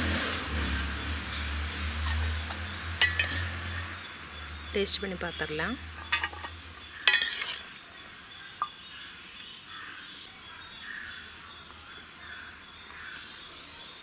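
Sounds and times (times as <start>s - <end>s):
spoon clinking on metal bowl: 3.0s - 3.5s, 7.1s - 7.6s.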